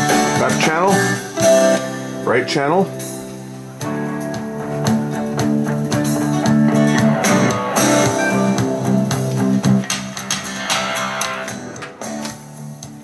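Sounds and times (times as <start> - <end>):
radio music with guitar: 0.0 - 13.0.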